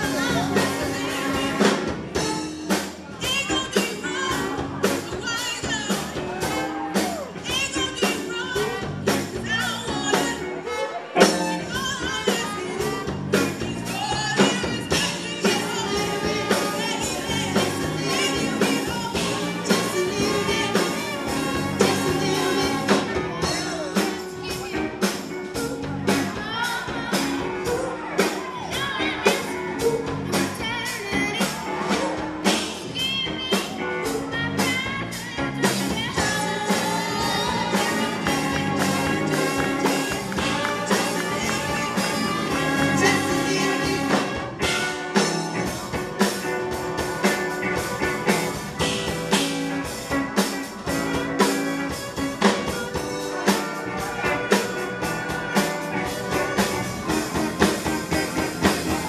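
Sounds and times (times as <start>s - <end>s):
group of voices singing: 0.0s - 2.6s, 8.1s - 24.3s, 33.6s - 49.0s
steady drum beat: 0.0s - 10.6s, 11.2s - 59.0s
saxophones and trumpets: 0.0s - 59.0s.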